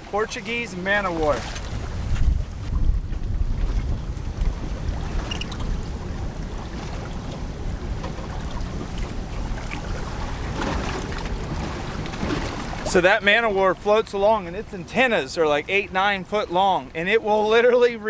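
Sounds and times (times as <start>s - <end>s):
wind on microphone: 0.0s - 13.0s
water lapping against boat hull: 0.0s - 17.9s.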